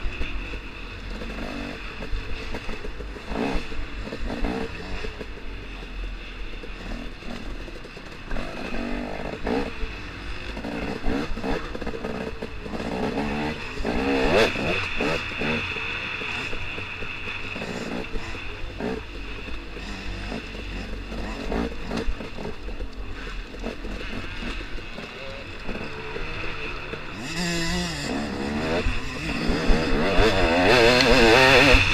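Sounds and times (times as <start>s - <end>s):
dirt bike engine revving: 0.0s - 31.9s.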